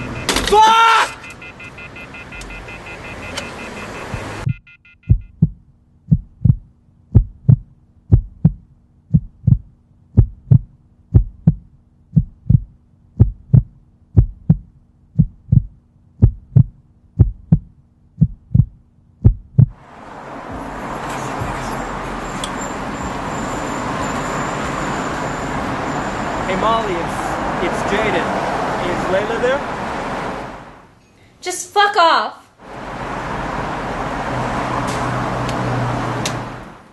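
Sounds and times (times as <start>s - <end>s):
street ambience: 0.0s - 36.9s
traffic noise: 0.0s - 36.9s
heartbeat thumps: 4.1s - 19.8s.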